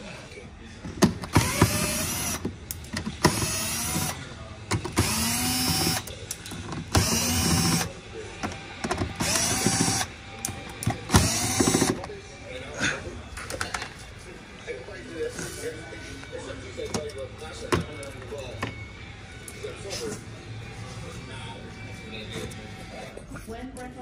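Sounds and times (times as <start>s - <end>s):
cordless drill whining: 1.3s - 2.4s, 3.2s - 4.2s, 5.0s - 6.1s, 7.0s - 7.9s, 9.2s - 10.1s, 11.1s - 12.0s.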